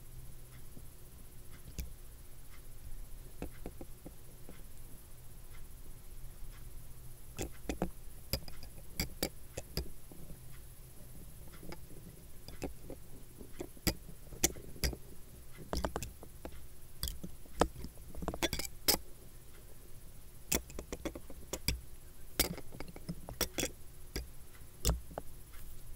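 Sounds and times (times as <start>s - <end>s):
faint steady hum: 0.0s - 25.9s
kaleidoscope clicks and clinks: 11.4s - 19.1s, 20.5s - 25.2s.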